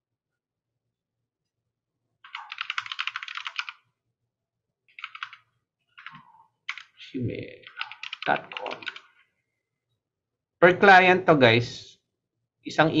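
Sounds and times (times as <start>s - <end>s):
computer keyboard typing: 2.2s - 3.9s, 4.9s - 7.0s, 7.6s - 9.2s.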